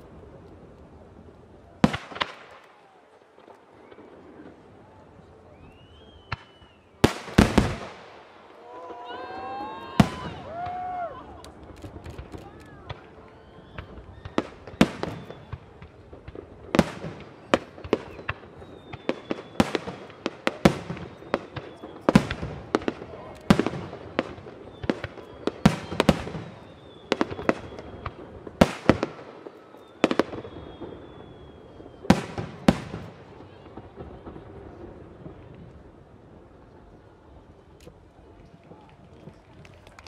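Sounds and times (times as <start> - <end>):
faint high whistles: 5.4 - 7.0, 12.4 - 15.9, 17.4 - 19.8, 20.9 - 22.2, 24.6 - 28.4, 29.4 - 32.4
fireworks shells bursting: 11.5 - 22.8.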